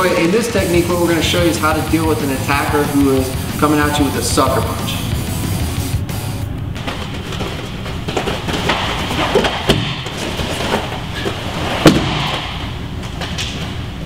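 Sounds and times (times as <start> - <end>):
bare feet scuffling: 6.6 - 13.7
bodies thumping on mats: 6.7 - 13.4.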